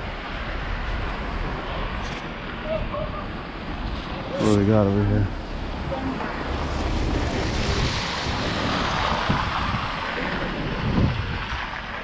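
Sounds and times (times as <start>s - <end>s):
wind rushing over microphone: 0.0s - 12.0s.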